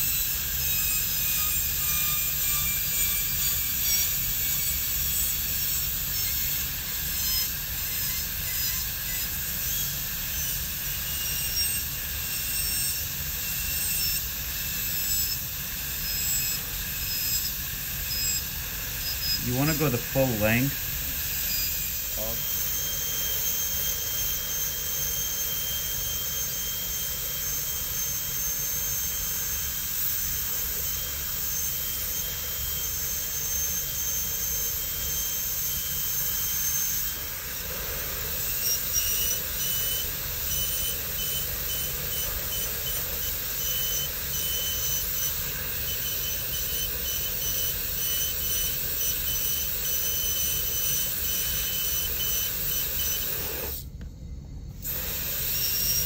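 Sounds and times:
dental drill whining: 0.0 - 54.0, 54.7 - 56.0
water spray hiss: 54.8 - 56.0.

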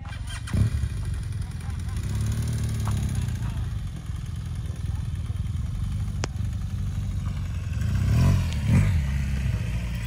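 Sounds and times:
motorcycle engine at low revs: 0.0 - 10.0
motorcycle throttle bursts: 0.0 - 10.0.

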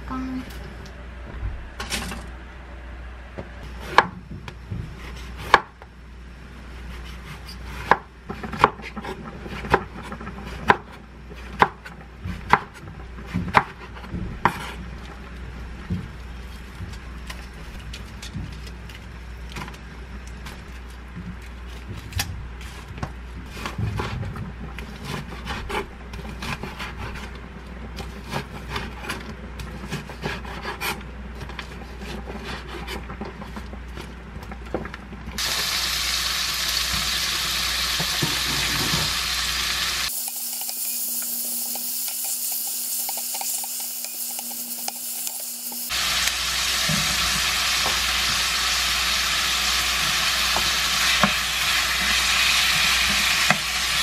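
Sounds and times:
food sizzling in frying pan: 35.4 - 54.0.

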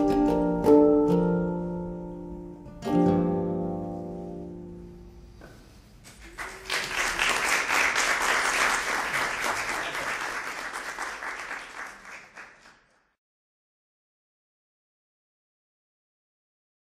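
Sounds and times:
audience applauding: 6.1 - 13.1.

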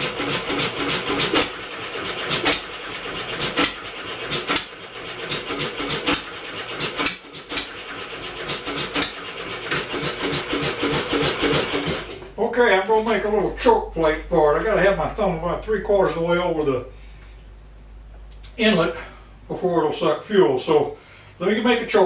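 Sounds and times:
engine fast mechanical chatter: 0.0 - 12.2.

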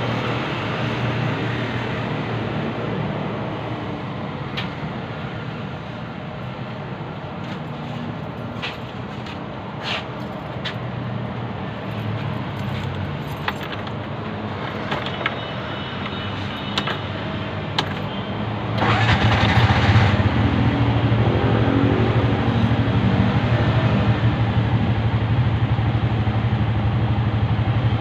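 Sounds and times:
vehicle engine idling: 23.9 - 28.0.

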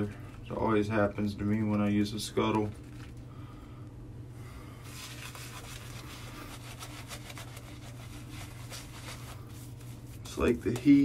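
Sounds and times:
steady low hum: 0.0 - 11.0
shaving brush scratchy strokes: 4.8 - 10.4.

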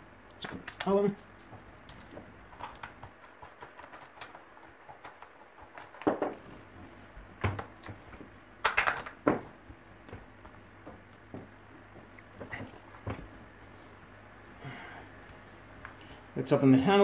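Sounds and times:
plastic parts clicking and knocking: 1.6 - 6.5, 7.4 - 9.5.

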